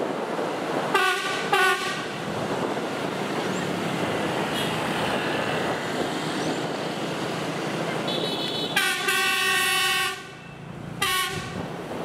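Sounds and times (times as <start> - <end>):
street noise: 0.0 - 12.0
train running noise: 0.0 - 12.0
train horn blasts: 0.9 - 2.1, 8.6 - 10.3, 11.0 - 11.6.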